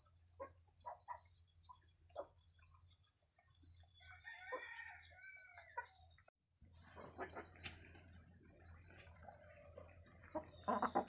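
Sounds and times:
rooster crowing: 4.1s - 6.0s
chickens clucking: 6.8s - 11.0s
chickens pecking grain: 6.8s - 11.0s.

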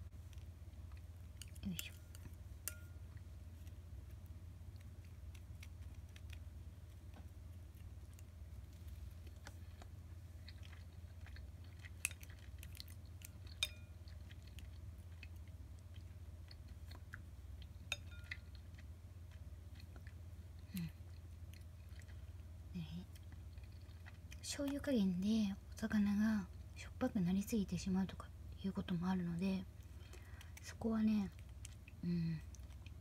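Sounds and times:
steady low hum: 0.0s - 33.0s
chewing and mouth sounds: 0.1s - 26.8s, 29.6s - 33.0s
chopsticks clicking on ceramic bowl: 1.4s - 3.0s, 13.5s - 13.9s.

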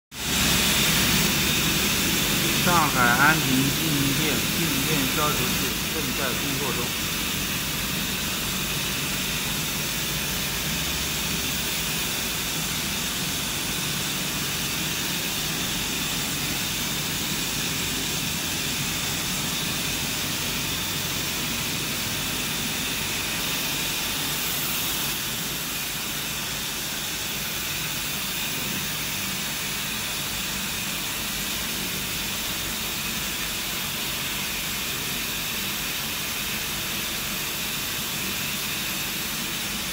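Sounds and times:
printer hiss and whir: 0.2s - 39.9s.

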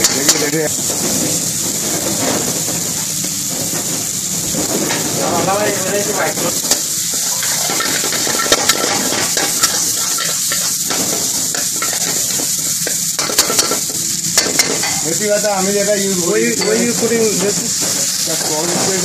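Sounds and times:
chicken sizzling in wok: 0.0s - 19.0s
metal ladle scraping wok: 6.6s - 15.1s.

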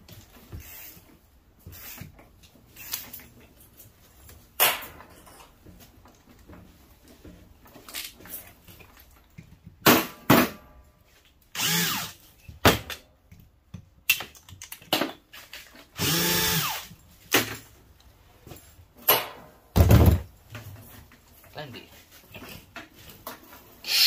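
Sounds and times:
cordless drill running: 11.6s - 12.2s, 16.0s - 16.9s.

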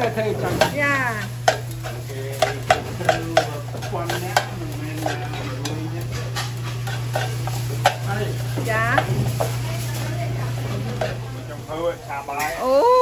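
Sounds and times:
utensils clinking on dishes: 0.0s - 11.4s
steady low hum: 0.0s - 12.4s
background chatter: 0.0s - 13.0s.

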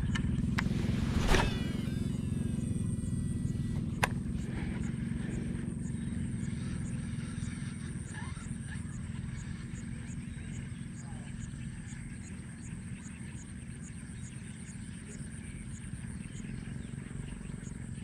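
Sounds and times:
low motor drone: 0.0s - 18.0s.

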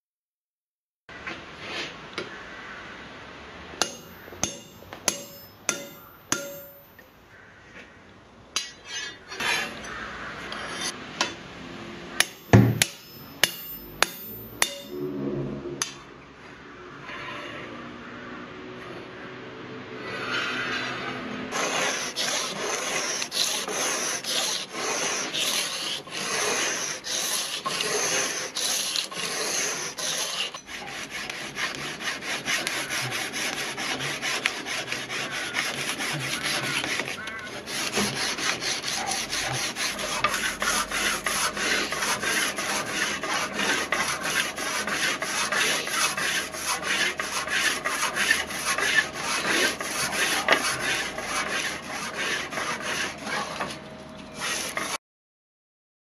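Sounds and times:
sanding sword blade: 3.8s - 7.0s, 10.5s - 11.0s, 12.2s - 15.1s, 20.1s - 53.8s, 54.4s - 55.0s.

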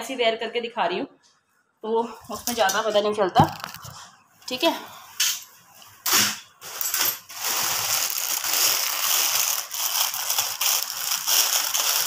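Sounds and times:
plastic packaging crinkling: 6.1s - 12.0s.

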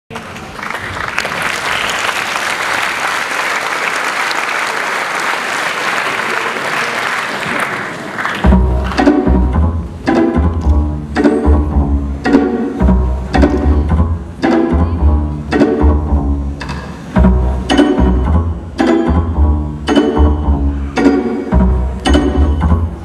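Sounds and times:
audience applauding: 0.1s - 9.0s
music with heavy bass pulse: 8.5s - 23.0s.

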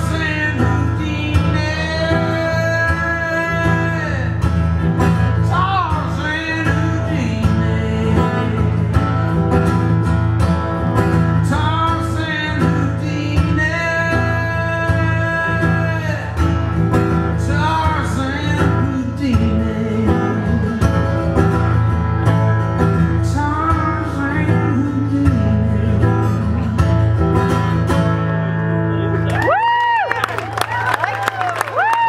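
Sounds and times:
man singing: 0.0s - 9.8s, 11.3s - 21.9s, 22.8s - 27.4s
acoustic guitar strumming: 0.0s - 29.3s
bass line: 0.0s - 29.6s.

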